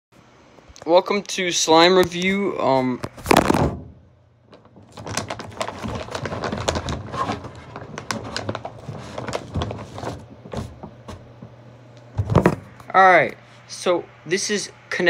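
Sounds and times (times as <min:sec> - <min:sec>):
rustling and crinkling handling noise: 0:04.4 - 0:12.9.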